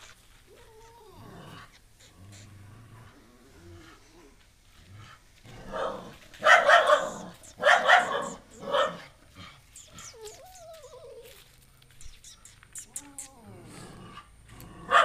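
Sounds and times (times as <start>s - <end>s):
dog barking: 5.6s - 9.1s
puppy whimpering: 9.8s - 13.8s.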